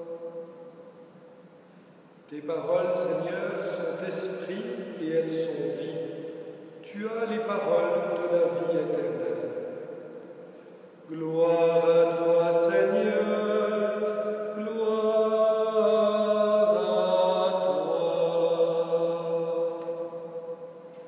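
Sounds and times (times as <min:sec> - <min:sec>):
man chanting: 0:02.3 - 0:09.7, 0:11.1 - 0:20.8.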